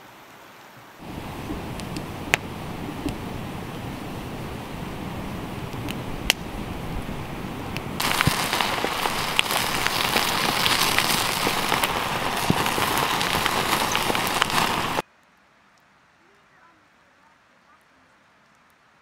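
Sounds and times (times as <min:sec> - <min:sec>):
meat sizzling on a grill: 0:01.0 - 0:15.0
campfire crackling and popping: 0:01.0 - 0:15.9.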